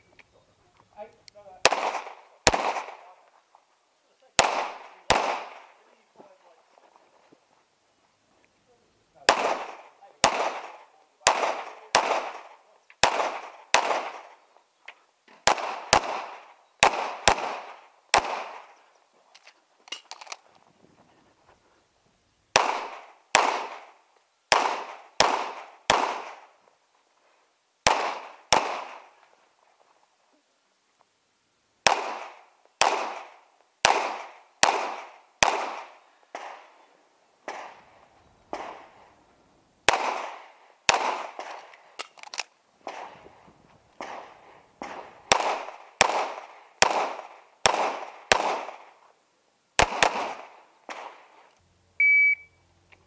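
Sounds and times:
pistol shots: 1.6 - 3.1, 4.4 - 5.8, 9.3 - 14.4, 15.4 - 18.8, 22.5 - 26.5, 27.8 - 29.2, 31.8 - 36.8, 37.4 - 37.8, 38.5 - 39.0, 39.9 - 43.2, 44.0 - 49.0, 49.8 - 51.3.

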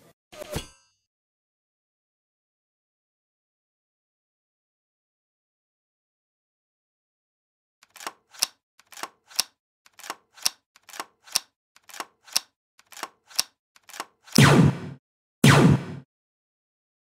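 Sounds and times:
toy blaster shots: 13.9 - 16.0.

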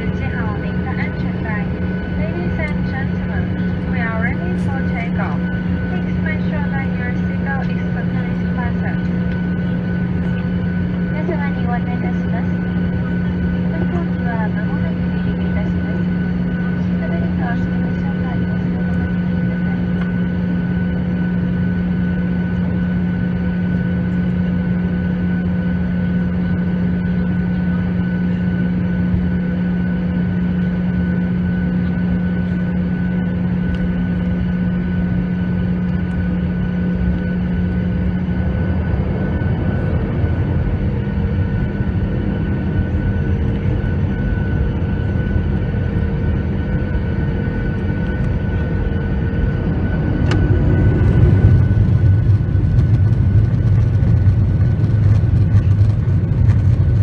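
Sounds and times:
jet engines and cabin hum: 0.0 - 57.0
low rumble: 34.2 - 57.0.

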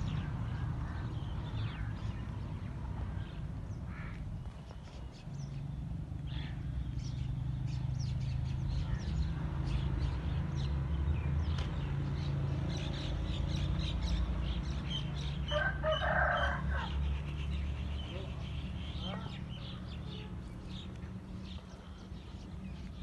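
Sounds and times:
bird chirps and calls: 16.7 - 23.0.

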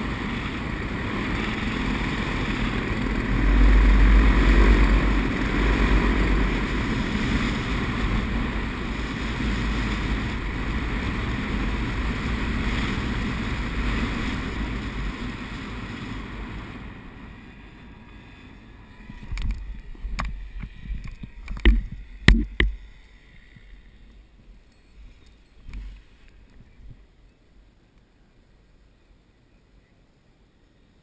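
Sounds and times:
sharp knocks and thumps: 20.1 - 22.8.

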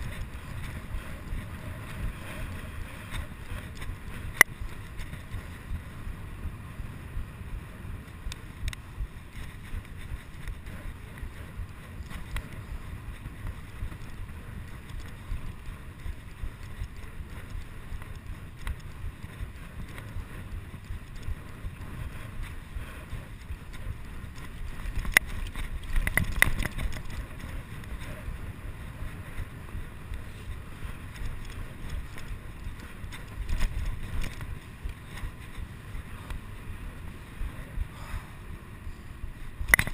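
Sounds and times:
wind buffeting microphone: 0.0 - 39.9
bicycle knocks and rattles: 23.7 - 36.4, 39.6 - 39.9
sharp click: 39.7 - 39.9.

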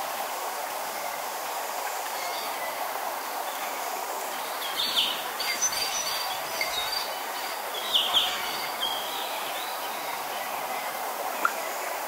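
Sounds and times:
small waterfall rushing: 0.0 - 12.0
wind: 0.0 - 12.0
birds chirping: 4.3 - 10.7.

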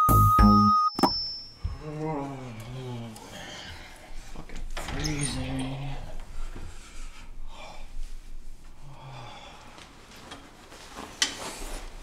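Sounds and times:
person breathing: 1.6 - 4.5, 6.0 - 10.1
clothing rustling: 9.6 - 12.0.

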